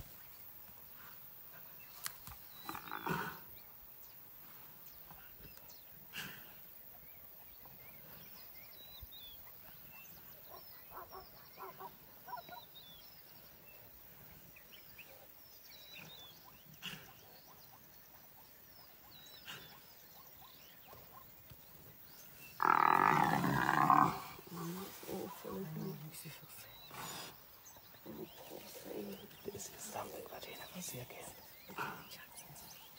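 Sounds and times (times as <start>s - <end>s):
rough animal call: 22.5s - 25.4s.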